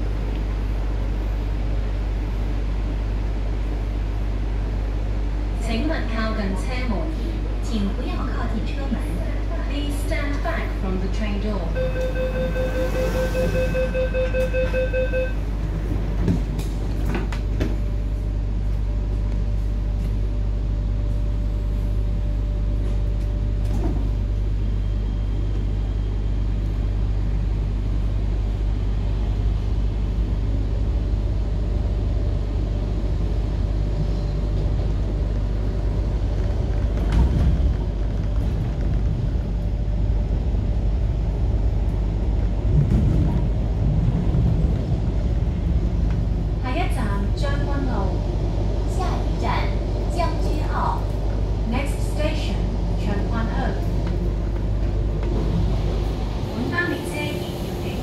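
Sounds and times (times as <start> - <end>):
train running rumble: 0.0 - 58.0
door-closing warning beeps: 11.8 - 15.4.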